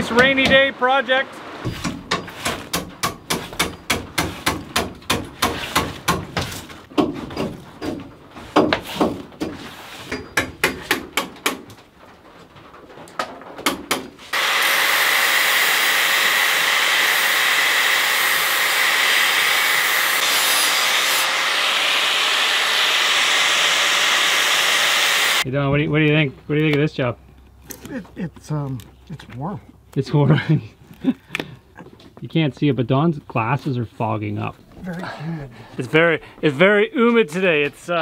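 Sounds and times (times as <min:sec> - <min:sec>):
hand tool knocking bark: 0:01.7 - 0:06.4.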